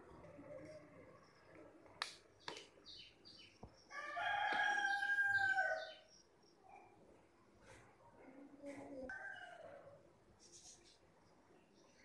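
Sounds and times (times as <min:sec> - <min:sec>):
rooster crowing: 0:03.9 - 0:06.0.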